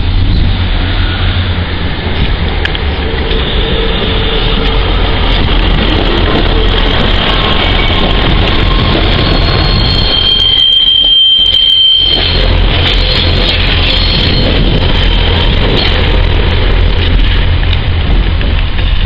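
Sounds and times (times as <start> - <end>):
diesel train passing: 0.0 - 19.0
high wheel squeal: 0.2 - 1.6, 2.9 - 16.2.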